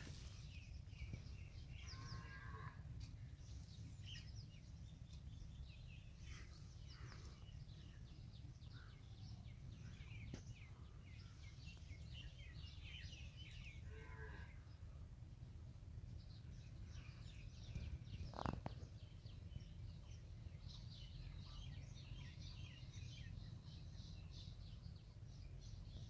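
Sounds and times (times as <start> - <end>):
small birds chirping: 0.0 - 26.0
steady low rumble: 2.7 - 13.8.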